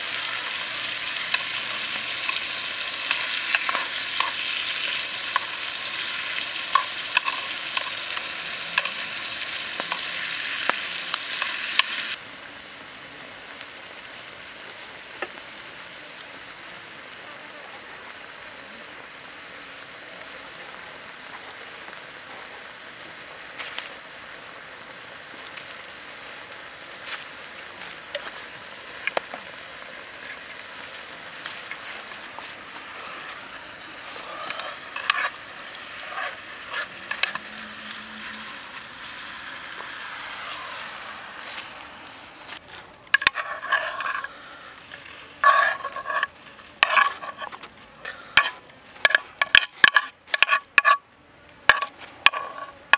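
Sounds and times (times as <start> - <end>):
food sizzling in pan: 0.0 - 51.0, 51.7 - 52.9
spatula scraping and tapping pan: 1.0 - 9.0, 34.1 - 37.6, 43.1 - 44.3, 45.4 - 47.7, 48.3 - 51.0, 51.7 - 52.9
utensil clinks and scrapes: 34.0 - 37.5, 42.6 - 47.7.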